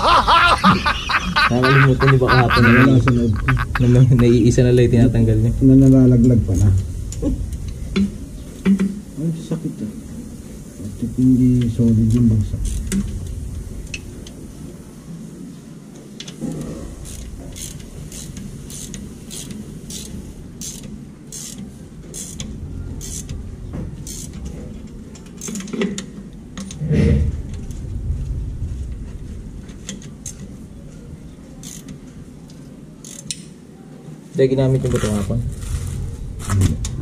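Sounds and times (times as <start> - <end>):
low steady rumble: 0.0 - 25.3, 26.2 - 32.9
ratchet wrench clicking: 12.1 - 13.0, 17.0 - 22.4, 23.0 - 23.3, 24.0 - 24.4, 25.4 - 25.7, 31.6 - 32.0, 33.0 - 33.5.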